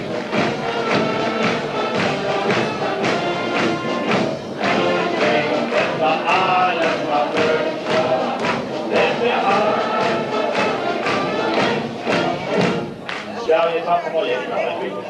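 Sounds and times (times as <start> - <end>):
group of voices singing: 0.0 - 15.0
music playing: 0.0 - 15.0.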